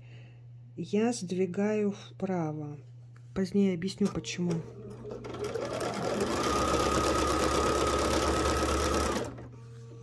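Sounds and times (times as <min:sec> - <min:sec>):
sewing machine stitching: 0:04.8 - 0:09.5.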